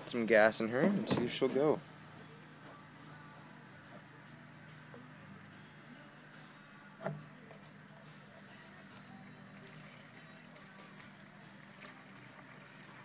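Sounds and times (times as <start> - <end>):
gasoline trickling into tank: 8.5 - 13.0.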